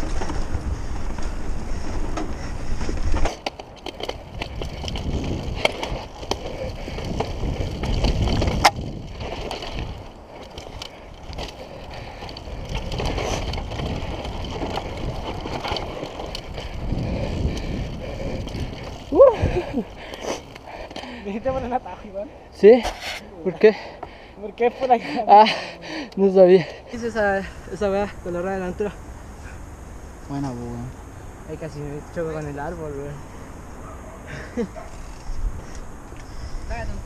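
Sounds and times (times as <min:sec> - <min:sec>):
bike clicks and rattles: 0:00.0 - 0:22.1, 0:33.8 - 0:36.5
bike tyres on dirt: 0:00.0 - 0:37.0
wind on microphone: 0:04.1 - 0:20.6.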